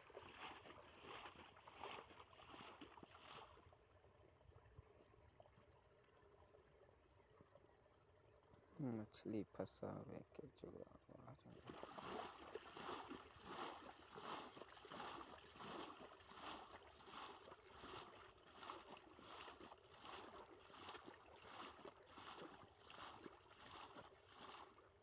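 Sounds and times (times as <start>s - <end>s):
water splashing from bailing: 0.0s - 4.2s, 11.4s - 25.0s.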